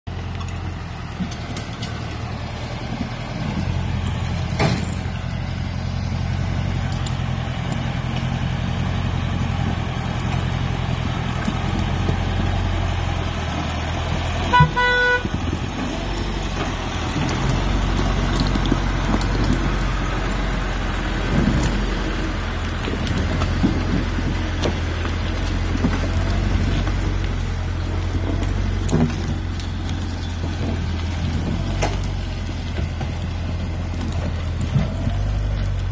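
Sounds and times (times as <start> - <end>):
tractor engine running: 0.0 - 35.9
horn toot: 14.5 - 15.3.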